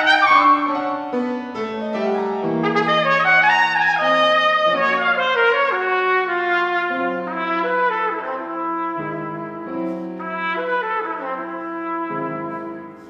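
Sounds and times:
solo trumpet playing: 0.0 - 1.4, 2.0 - 13.0.

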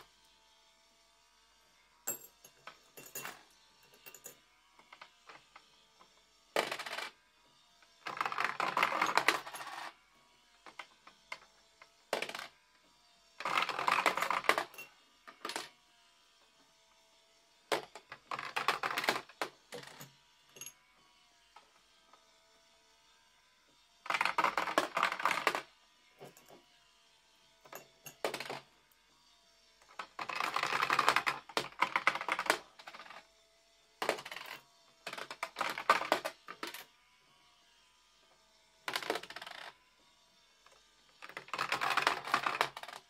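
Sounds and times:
coins clattering through pegs: 2.1 - 4.4, 8.1 - 9.9, 13.5 - 15.7, 19.8 - 20.8, 27.7 - 28.6, 41.2 - 43.0.

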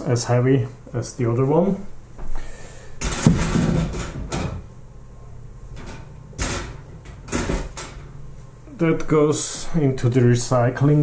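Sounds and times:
heavy metal parts clunking: 3.0 - 4.7.

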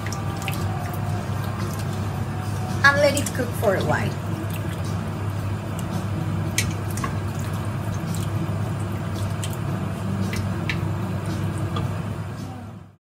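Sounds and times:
liquid sloshing in a pot: 0.0 - 12.1
steady low hum: 0.0 - 13.0.

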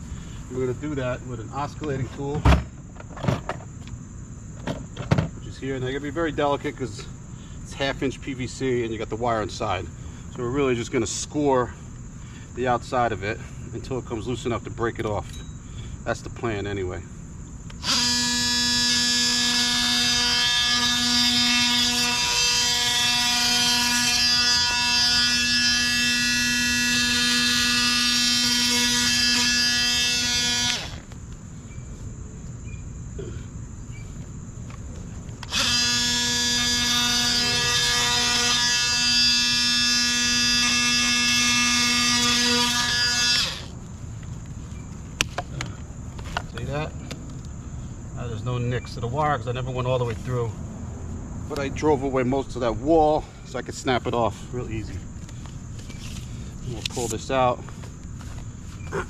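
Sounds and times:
oscillating multi-tool buzzing: 17.7 - 31.2, 35.4 - 43.9.

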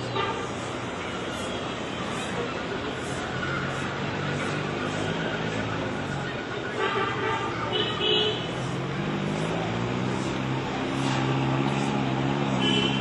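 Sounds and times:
vehicle engine running: 7.8 - 13.0.

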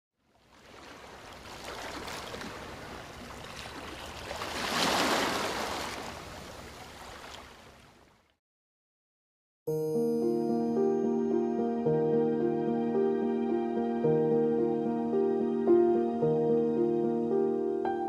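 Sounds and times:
ocean waves washing: 0.5 - 7.9.

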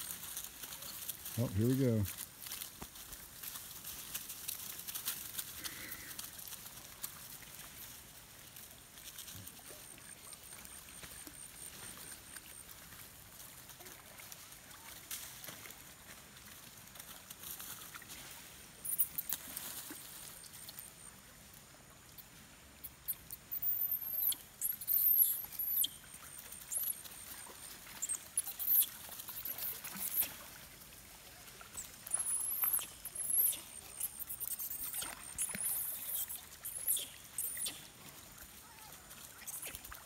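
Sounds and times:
water splashing and sloshing: 2.1 - 20.8, 25.5 - 40.0
monkeys squeaking: 23.5 - 26.0, 28.0 - 30.3, 32.1 - 37.9.

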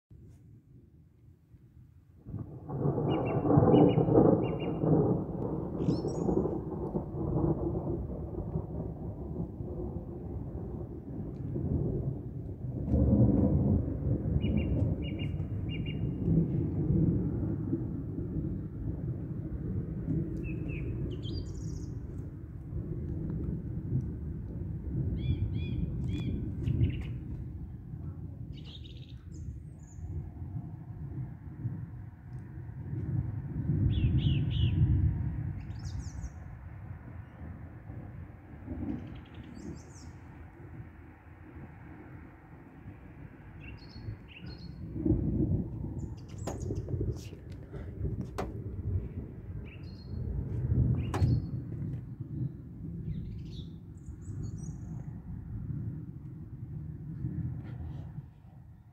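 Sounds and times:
thunder rumbling: 2.2 - 58.9
bird chirps: 20.4 - 22.0, 28.6 - 30.0
birds calling and chirping: 20.4 - 22.0, 43.6 - 44.9, 46.0 - 47.3, 51.0 - 51.6.

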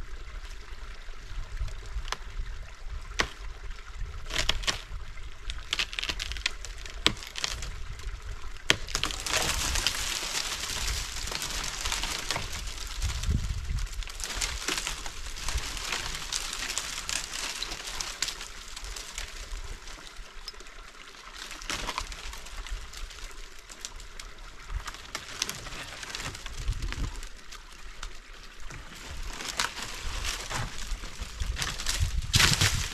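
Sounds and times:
wind rumbling on microphone: 0.0 - 5.6, 7.5 - 20.2, 25.7 - 27.4, 28.6 - 32.9
dry branches rustling and snapping: 3.0 - 3.5, 4.1 - 32.9.

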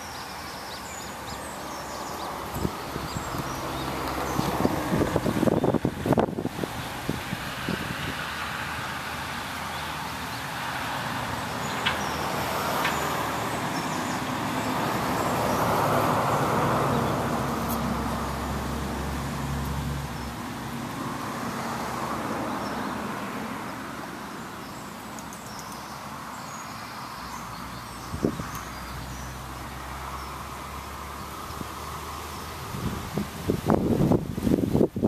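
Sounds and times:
vehicle passing: 0.0 - 34.6.

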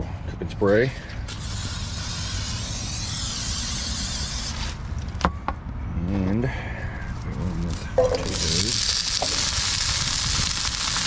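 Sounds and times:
aerosol cooking spray hissing: 1.4 - 4.5.

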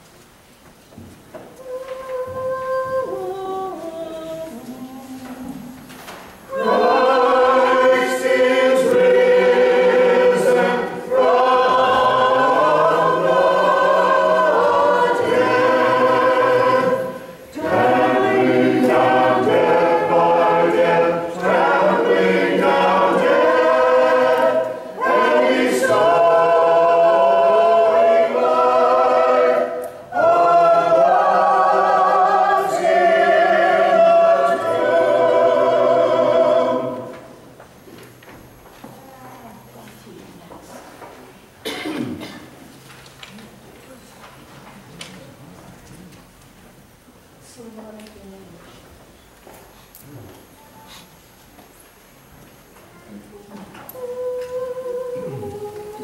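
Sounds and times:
choir chanting a cappella: 1.6 - 37.6, 41.6 - 42.3, 53.4 - 56.0.

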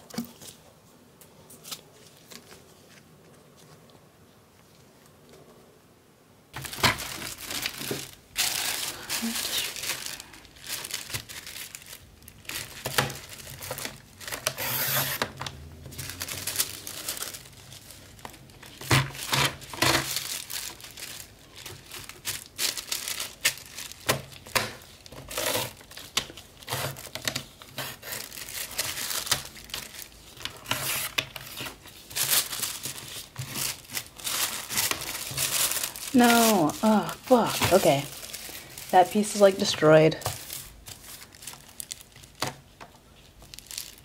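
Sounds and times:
tissue paper crinkling: 6.6 - 14.6, 15.2 - 44.0
paper trimmer cutting: 14.5 - 15.3.

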